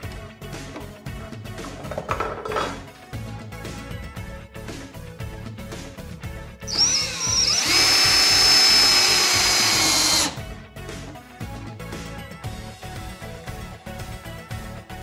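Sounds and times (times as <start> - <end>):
cordless drill whining: 6.7 - 10.4.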